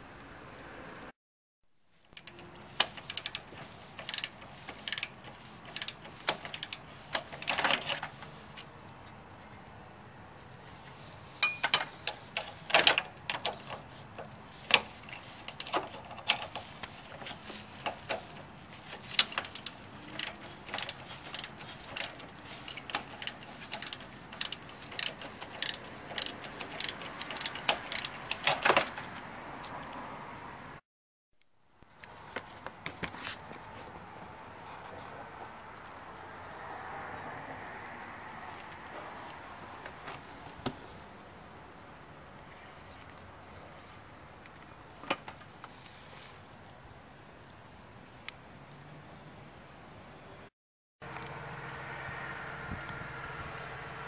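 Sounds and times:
ratchet wrench clicking: 0:02.1 - 0:08.7, 0:14.6 - 0:29.2.

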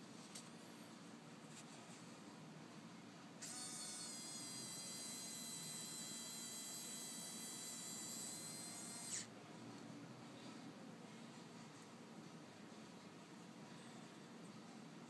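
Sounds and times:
electric motor whining: 0:03.4 - 0:09.3.

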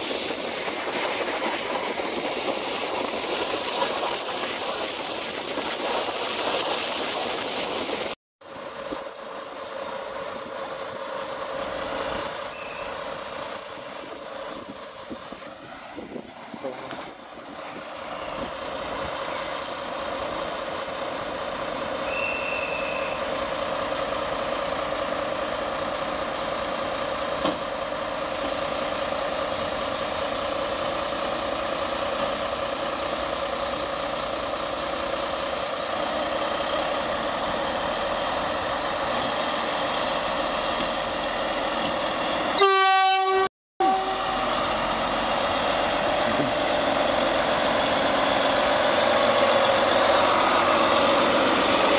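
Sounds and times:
diesel locomotive idling: 0:08.4 - 0:51.9
locomotive horn blast: 0:42.6 - 0:44.7.

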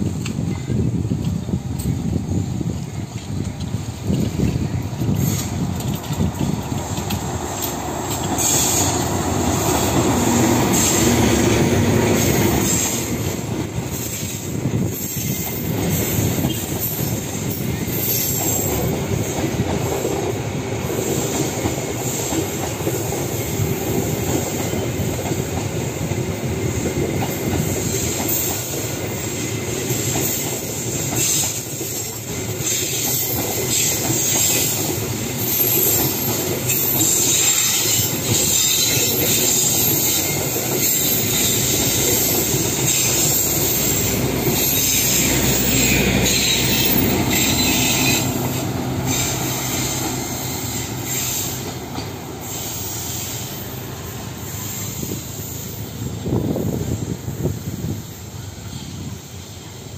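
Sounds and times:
diesel locomotive passing: 0:00.0 - 0:59.9
train wheels rumbling on rails: 0:00.0 - 0:59.9
clicking over rail joints: 0:02.7 - 0:11.2.

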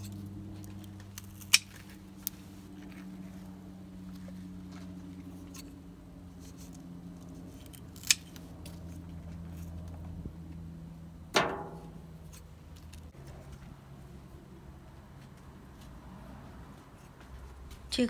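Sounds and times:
garden scissors snipping stems: 0:00.0 - 0:02.4, 0:06.4 - 0:09.7
steady low hum: 0:00.0 - 0:18.0.

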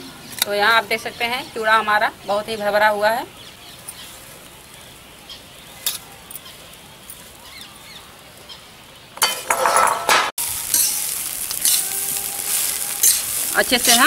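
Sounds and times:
metal spatula scraping dry rice: 0:10.6 - 0:14.0.

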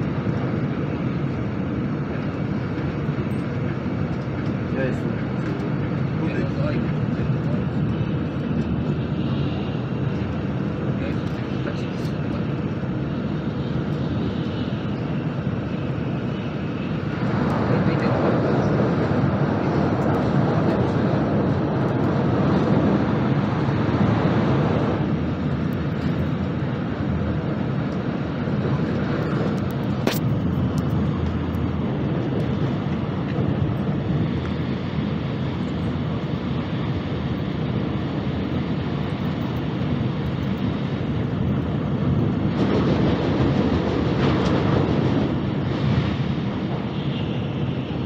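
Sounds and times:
train passing on next track: 0:00.0 - 0:48.0
train wheels and rushing air: 0:00.0 - 0:48.0.

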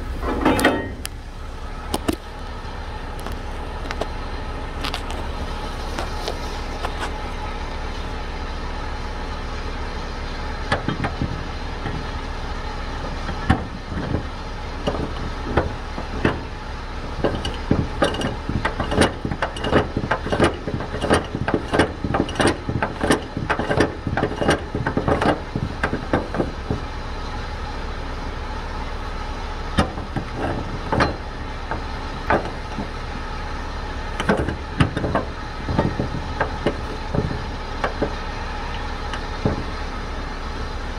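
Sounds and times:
truck engine idling: 0:00.0 - 0:40.9
irregular clicks and knocks: 0:13.2 - 0:16.5, 0:17.2 - 0:26.8, 0:29.8 - 0:32.9, 0:34.2 - 0:39.8.

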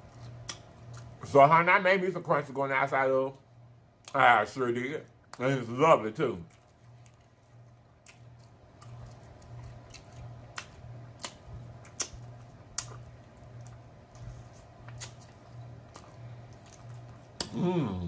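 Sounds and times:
chewing crispy chicken: 0:00.0 - 0:01.4, 0:06.4 - 0:17.7
low pulsing hum: 0:06.4 - 0:18.0.

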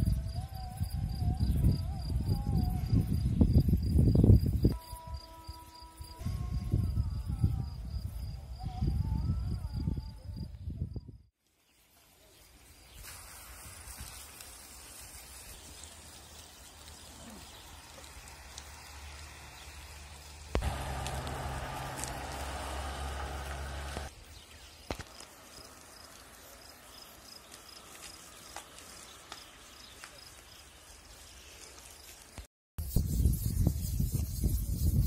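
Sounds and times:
faint outdoor ambience: 0:11.4 - 0:32.5.

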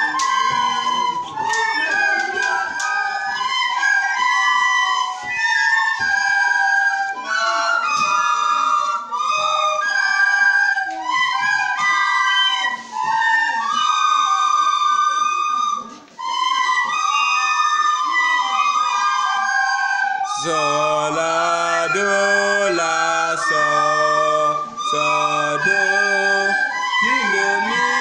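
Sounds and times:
children playing recorders: 0:00.0 - 0:28.0
person singing: 0:20.3 - 0:28.0.

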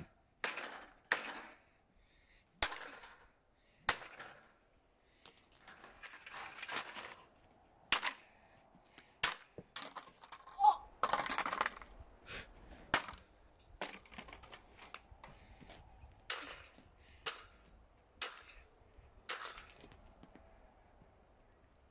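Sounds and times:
rough scraping: 0:05.6 - 0:08.2.

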